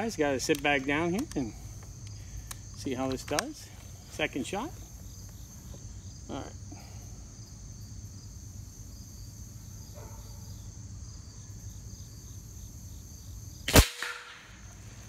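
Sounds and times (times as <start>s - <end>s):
insects chirring: 0.0s - 15.0s
air rifle shot: 13.7s - 14.7s.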